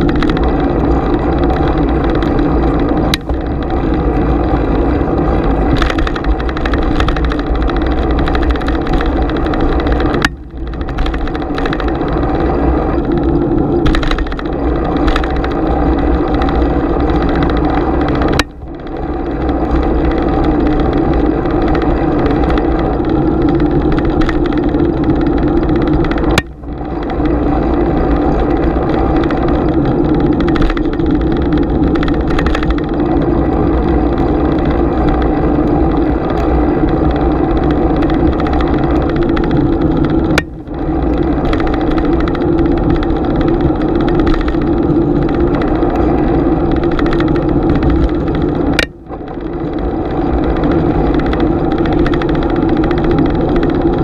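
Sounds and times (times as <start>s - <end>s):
bicycle riding rumble and wind: 0.0s - 54.0s.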